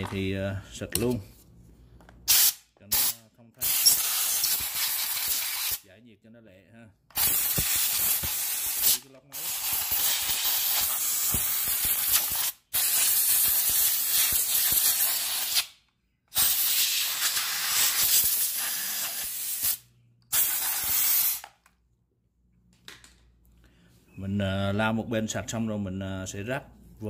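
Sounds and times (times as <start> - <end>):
air blow gun hissing: 2.3 - 5.8, 7.2 - 15.7, 16.4 - 21.4.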